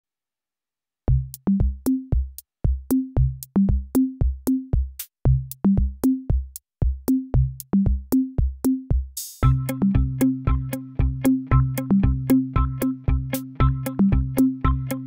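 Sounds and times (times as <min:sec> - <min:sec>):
electronic drum machine beat: 0:01.1 - 0:15.0
low bass notes: 0:09.4 - 0:15.0.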